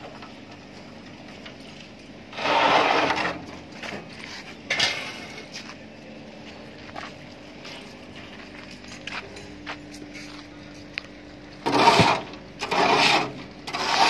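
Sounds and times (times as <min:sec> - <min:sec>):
steel plate scraping: 0:02.3 - 0:03.5, 0:11.6 - 0:14.0.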